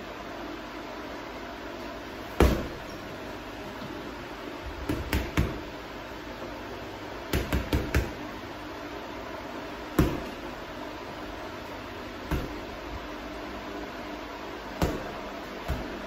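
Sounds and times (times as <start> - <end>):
punches on heavy bag: 2.4 - 2.8, 10.0 - 10.4, 14.8 - 16.0.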